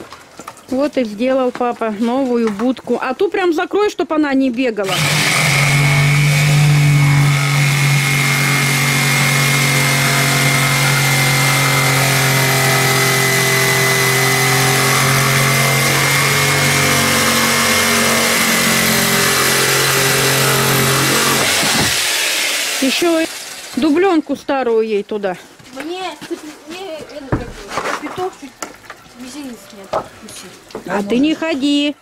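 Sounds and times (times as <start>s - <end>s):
power tool whining: 4.8s - 24.0s.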